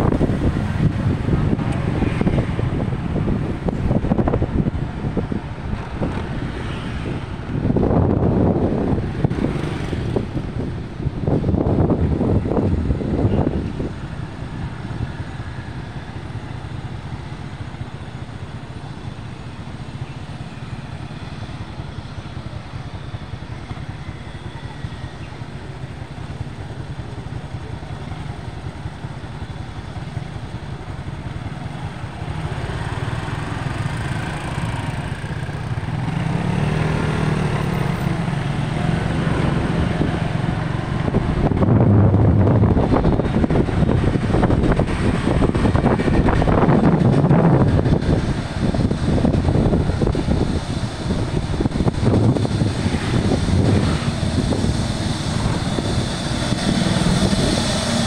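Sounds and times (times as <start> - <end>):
motorbike traffic rumble: 0.0 - 58.0
vehicle passing close: 36.0 - 58.0.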